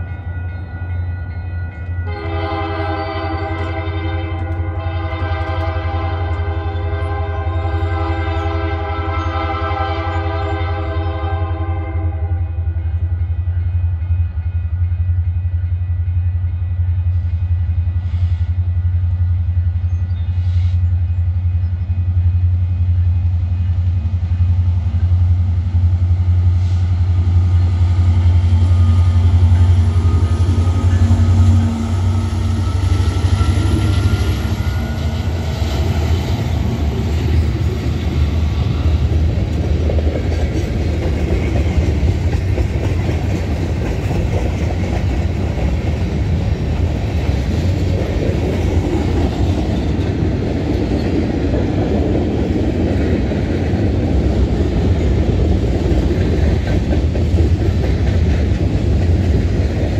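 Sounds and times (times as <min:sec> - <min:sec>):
diesel locomotive engine droning: 0:00.0 - 0:59.9
train wheels clattering on rails: 0:12.8 - 0:59.9.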